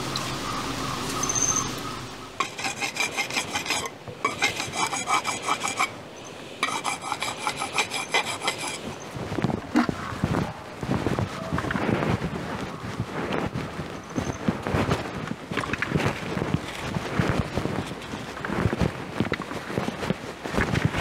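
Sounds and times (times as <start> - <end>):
knife sharpening scraping strokes: 2.4 - 9.2.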